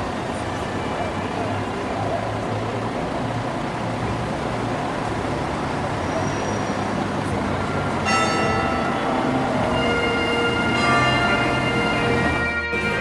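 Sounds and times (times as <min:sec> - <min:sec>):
vehicle engine idling: 0:00.0 - 0:13.0
music with sustained notes: 0:08.0 - 0:13.0.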